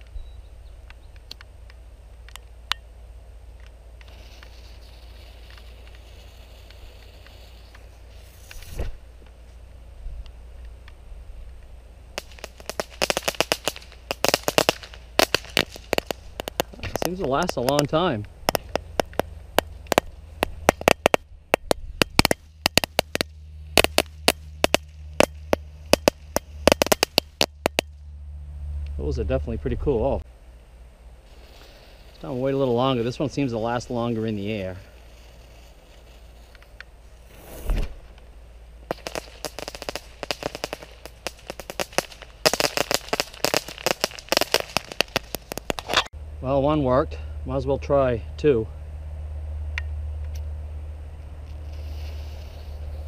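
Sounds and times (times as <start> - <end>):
crackling firework: 3.5 - 28.1, 31.2 - 46.1, 51.4 - 53.0.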